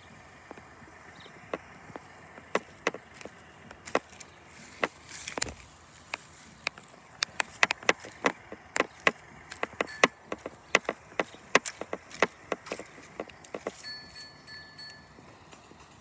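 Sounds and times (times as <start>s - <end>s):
sharp clicks and knocks: 1.5s - 13.8s
high steady tone: 9.7s - 10.6s.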